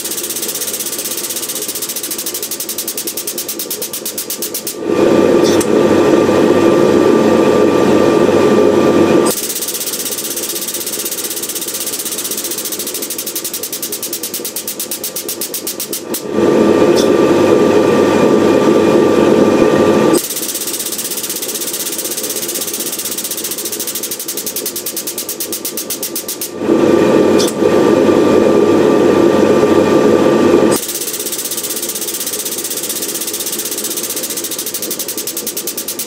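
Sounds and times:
fast even pulsing: 0.0s - 7.7s, 9.2s - 29.4s
air-driven pump running: 0.0s - 36.0s.

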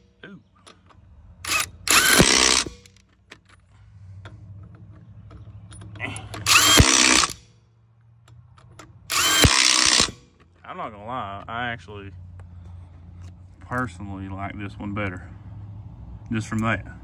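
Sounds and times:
impact wrench bursts: 1.4s - 3.0s, 6.1s - 7.5s, 9.1s - 10.4s.

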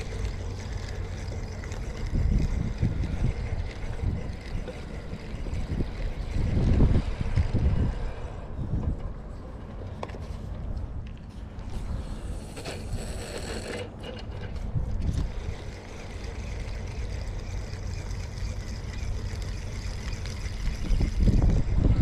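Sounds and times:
wind buffeting microphone: 0.0s - 13.2s, 14.3s - 22.0s.

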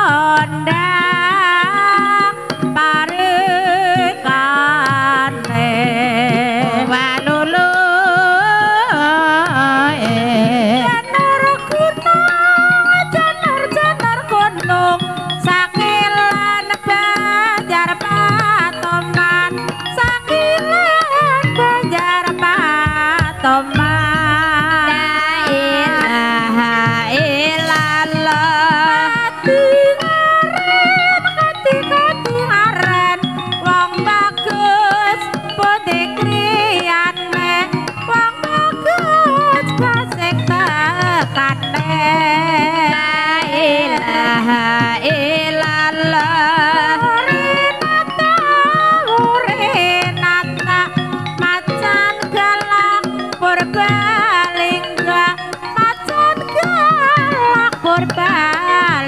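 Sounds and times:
struck percussion steady beat: 0.0s - 59.0s
woman singing with vibrato: 0.0s - 59.0s
gamelan ensemble: 0.3s - 59.0s
percussive strokes: 22.8s - 28.9s.

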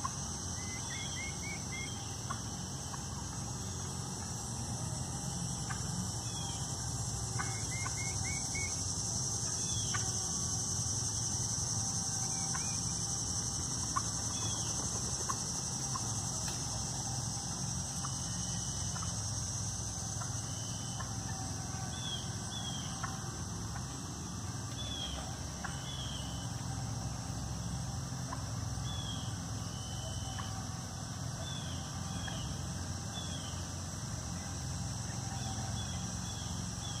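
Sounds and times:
steady high hiss: 0.0s - 37.0s
turkeys clucking: 7.4s - 8.8s, 12.3s - 13.0s, 17.5s - 19.2s, 20.2s - 21.5s, 28.2s - 28.6s.

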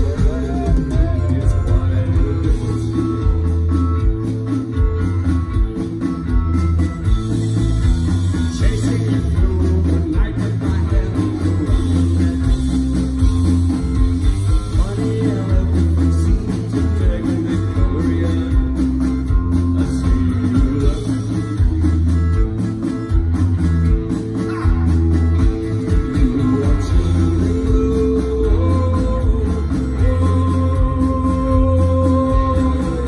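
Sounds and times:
man singing: 0.0s - 4.2s, 8.3s - 22.6s, 25.7s - 33.0s
bass guitar: 0.0s - 33.0s
distorted electric guitars: 0.0s - 33.0s
driving drum beat: 0.0s - 33.0s.

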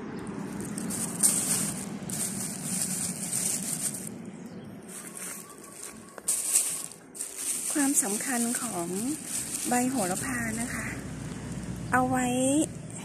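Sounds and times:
hands rustling loose soil: 0.3s - 4.2s, 4.8s - 10.8s.

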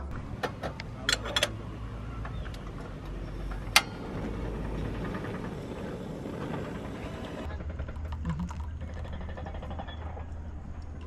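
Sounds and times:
steady low rumble: 2.4s - 11.0s.

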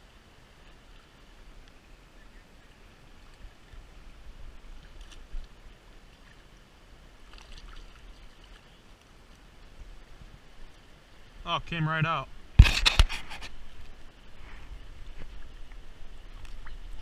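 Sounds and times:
stream running over stones: 0.0s - 17.0s
water splashes: 3.3s - 11.3s, 15.0s - 17.0s.

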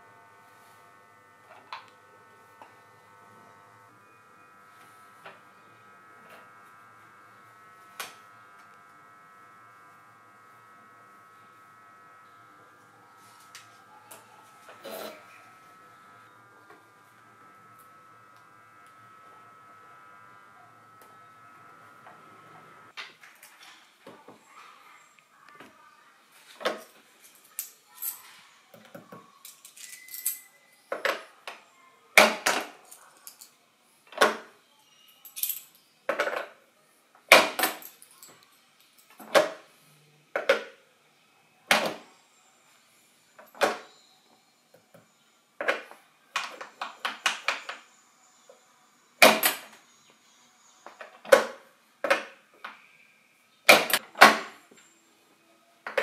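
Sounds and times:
coins clinking: 29.4s - 30.6s, 35.2s - 35.8s.

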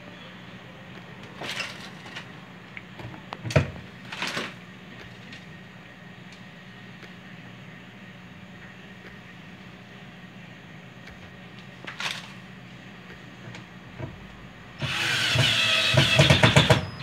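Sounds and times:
faint hum: 0.0s - 16.2s
cordless drill driving a screw: 14.8s - 16.8s.

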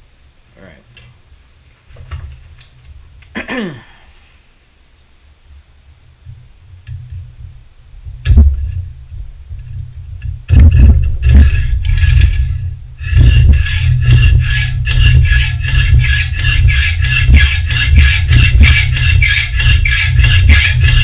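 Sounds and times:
hacksaw cutting metal: 10.7s - 21.0s.

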